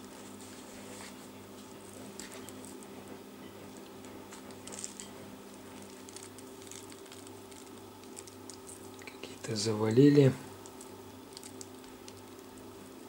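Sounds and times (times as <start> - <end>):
steady low hum: 0.0 - 13.0
granules rustling under fingers: 4.0 - 9.6.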